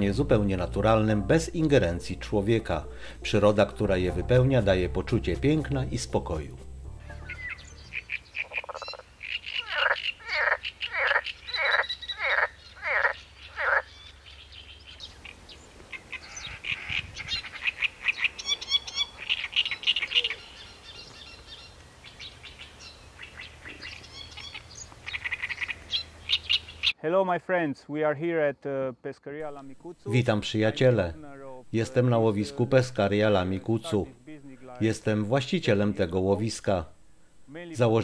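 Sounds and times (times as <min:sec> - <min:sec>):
birds calling: 0:07.1 - 0:27.0
frogs croaking: 0:07.3 - 0:27.0.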